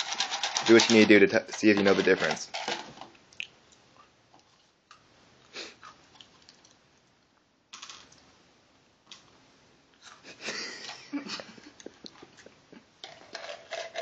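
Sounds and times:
crackers and cups clicking on table: 0:00.0 - 0:03.2, 0:13.0 - 0:14.0.

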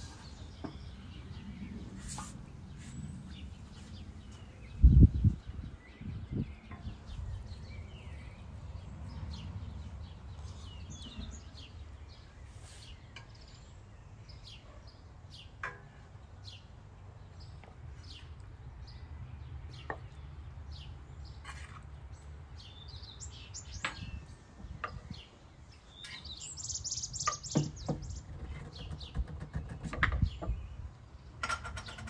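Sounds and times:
low outdoor rumble: 0:00.0 - 0:12.4
small birds chirping: 0:00.0 - 0:32.0.

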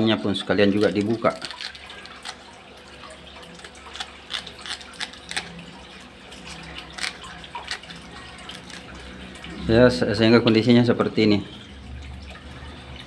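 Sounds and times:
trickling aquarium water: 0:00.0 - 0:13.0
scissors snipping: 0:03.6 - 0:05.6.

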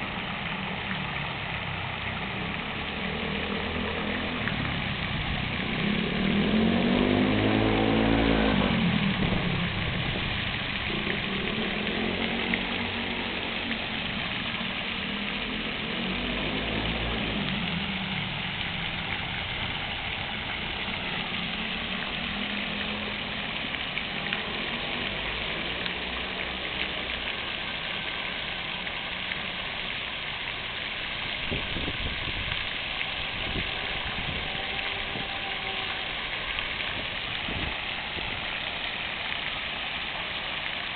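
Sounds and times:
fountain water splashing: 0:00.0 - 0:40.9
road vehicles passing: 0:00.0 - 0:40.9.

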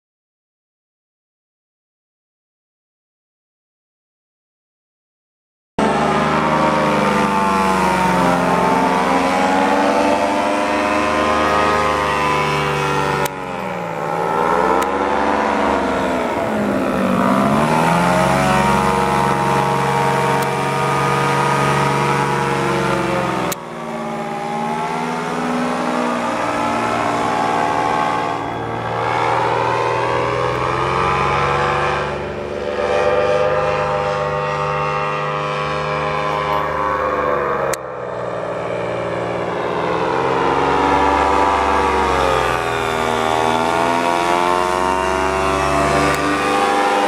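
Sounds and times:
paramotor engine and propeller: 0:05.8 - 0:47.0.

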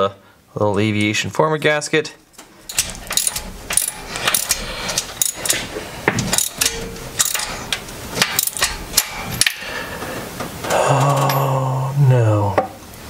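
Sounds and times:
ratchet clicking: 0:02.4 - 0:09.6
metal part shearing off: 0:02.4 - 0:09.7.

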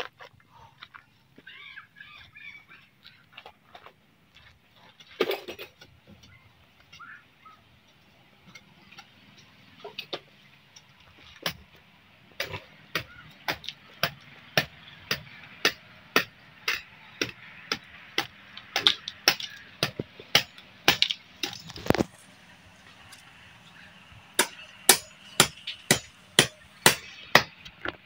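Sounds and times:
hammer blows: 0:24.3 - 0:27.6.

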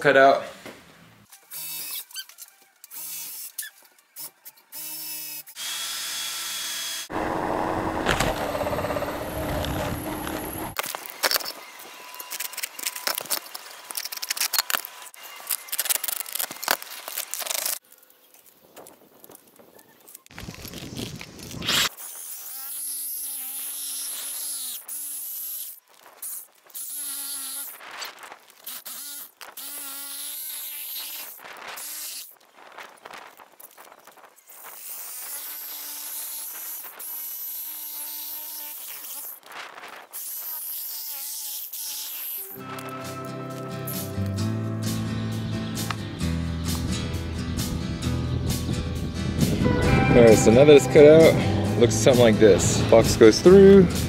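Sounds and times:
reciprocating saw buzzing: 0:02.9 - 0:17.8, 0:21.7 - 0:27.8
loud rough grinding noise: 0:05.6 - 0:13.5
cordless drill whirring: 0:05.6 - 0:15.6.

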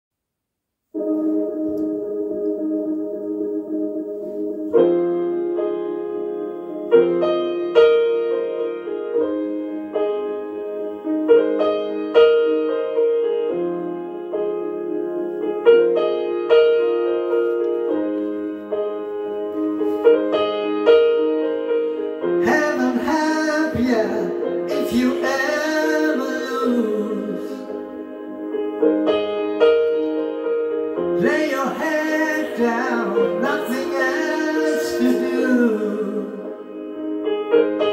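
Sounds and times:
keyboard chords: 0:00.8 - 0:37.9
man singing into microphone: 0:22.4 - 0:27.8, 0:31.2 - 0:36.6.

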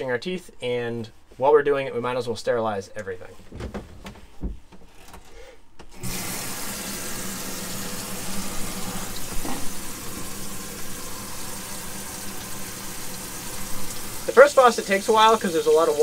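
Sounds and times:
faucet turned on: 0:05.9 - 0:16.0
water pump humming: 0:05.9 - 0:16.0
water pouring into sink: 0:06.0 - 0:16.0.

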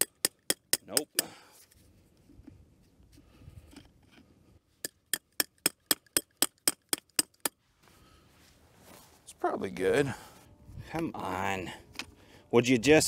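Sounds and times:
metal tool tapping battery terminal: 0:00.0 - 0:01.3, 0:04.8 - 0:07.5.

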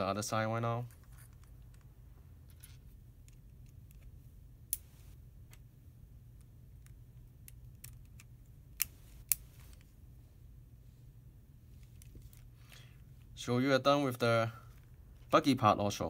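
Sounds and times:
faint steady low hum: 0:00.0 - 0:16.0.

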